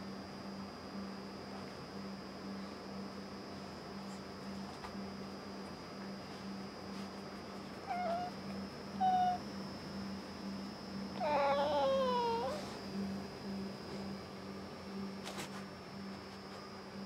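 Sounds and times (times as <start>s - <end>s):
cat meowing in sleep: 7.8s - 8.4s, 11.2s - 12.8s.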